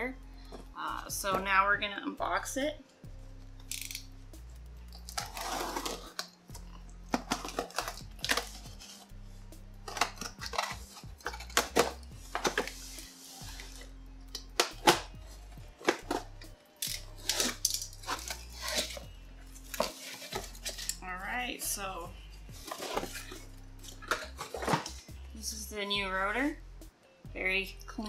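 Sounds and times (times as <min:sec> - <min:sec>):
background music: 0:00.0 - 0:28.0
cardboard box rustling and scraping: 0:05.2 - 0:06.2, 0:17.2 - 0:19.0, 0:19.6 - 0:21.0, 0:22.5 - 0:25.0.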